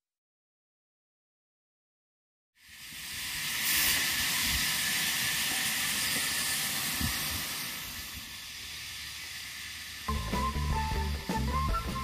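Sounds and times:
high-pitched hiss: 2.6s - 11.3s.

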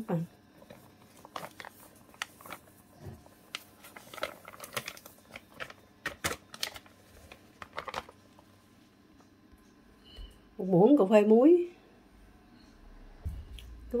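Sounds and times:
plastic bag crinkling: 0.6s - 8.4s.

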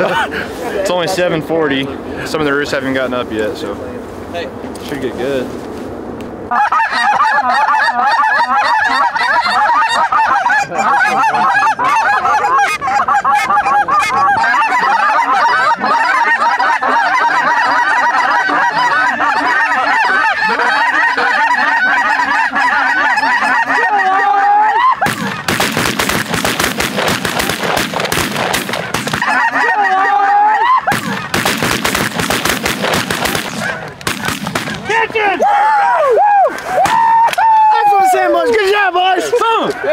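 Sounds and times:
geese honking: 6.5s - 39.9s
shotgun shots: 25.0s - 29.2s, 30.9s - 34.9s.

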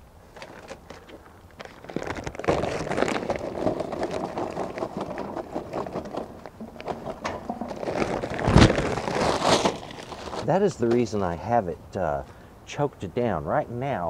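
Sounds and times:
charcoal clattering into metal firebox: 2.8s - 11.1s.

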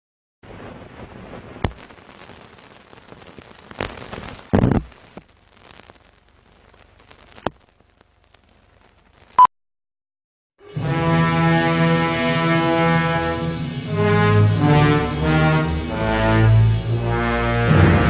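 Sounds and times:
film hiss with crackles and pops: 0.4s - 9.4s
loud thud: 17.7s - 18.0s.

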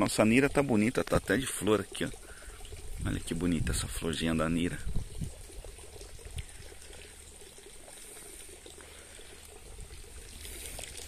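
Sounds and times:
water trickling: 0.0s - 11.0s.

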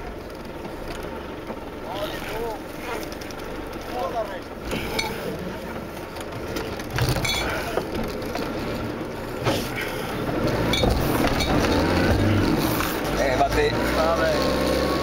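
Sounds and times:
vehicle engine under load: 0.0s - 15.0s
clinks and knocks from vehicle body: 2.9s - 13.4s.

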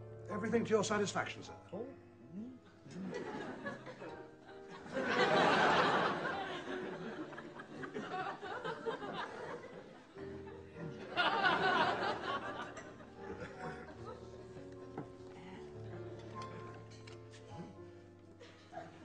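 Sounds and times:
soft background music: 0.0s - 19.0s
studio audience laughing: 2.9s - 14.7s.

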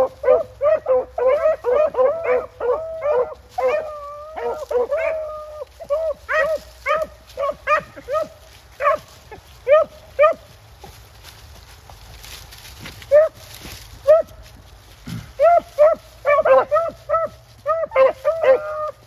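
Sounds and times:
dog yelping barks: 0.0s - 10.5s, 13.0s - 13.4s, 14.0s - 14.4s, 15.3s - 19.0s.

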